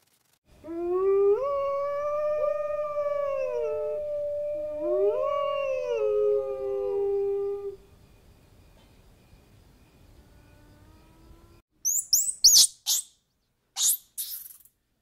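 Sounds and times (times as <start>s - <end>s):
wolves howling: 0.6s - 7.8s.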